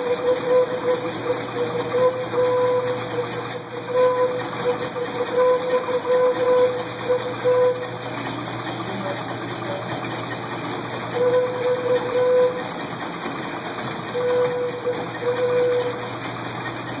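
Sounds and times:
organ pipe tooting: 0:00.0 - 0:08.1, 0:11.1 - 0:12.7, 0:14.1 - 0:16.2
air compressor running: 0:00.0 - 0:17.0.

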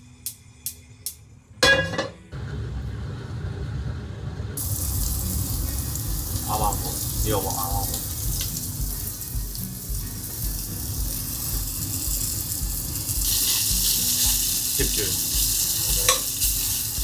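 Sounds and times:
utensil clinking on metal pan: 0:01.6 - 0:02.2, 0:15.9 - 0:16.5
meat sizzling in oil: 0:04.6 - 0:17.0.

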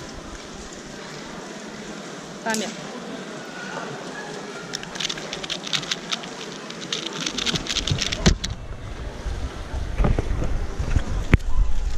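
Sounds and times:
plastic puzzle cube clicks: 0:04.7 - 0:08.5.

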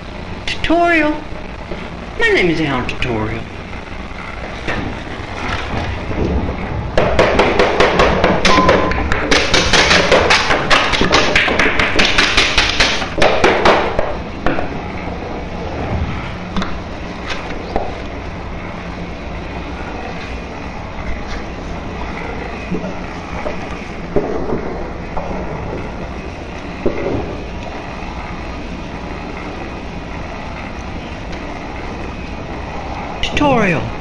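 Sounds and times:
fast sharp taps: 0:07.0 - 0:14.6.

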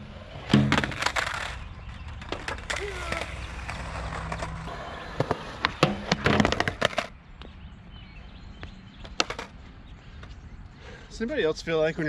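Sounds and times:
skateboard wheels rolling on concrete: 0:00.0 - 0:10.5
skateboard clattering: 0:00.4 - 0:07.1, 0:09.1 - 0:09.5.

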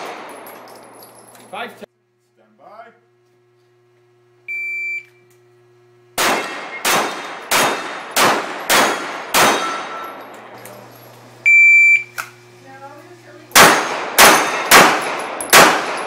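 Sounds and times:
pistol shots: 0:00.0 - 0:00.6, 0:06.2 - 0:10.1, 0:13.5 - 0:16.0
shot timer beep: 0:04.5 - 0:05.2, 0:11.4 - 0:12.2.

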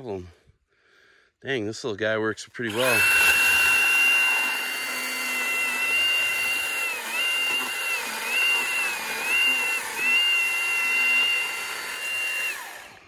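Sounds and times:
chainsaw cutting through log: 0:02.7 - 0:13.0.

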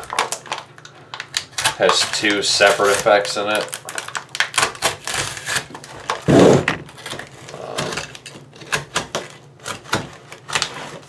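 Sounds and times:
paper wrapping tearing and crinkling: 0:00.0 - 0:11.0.

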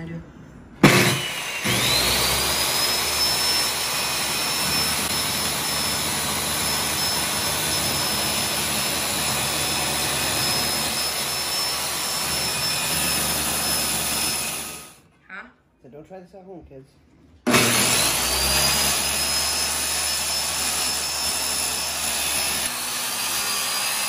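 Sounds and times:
circular saw cutting wood: 0:00.8 - 0:15.0, 0:17.5 - 0:24.0.

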